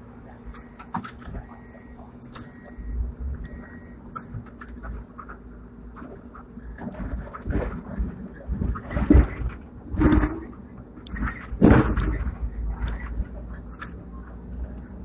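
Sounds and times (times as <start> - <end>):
short high beep: 0.4 - 4.0
rattles and knocks from car body: 4.2 - 14.0
tram wheels rumbling on rail: 4.4 - 15.0.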